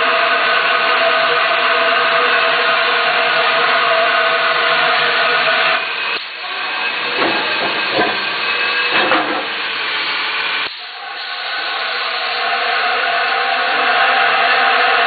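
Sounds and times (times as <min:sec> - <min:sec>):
machine hum: 0:00.0 - 0:15.0
hiss of spray: 0:10.6 - 0:12.8.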